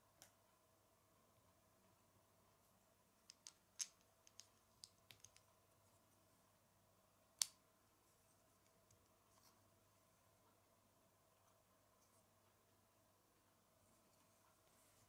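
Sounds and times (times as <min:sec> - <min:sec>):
plastic bricks clicking: 0:03.3 - 0:05.5.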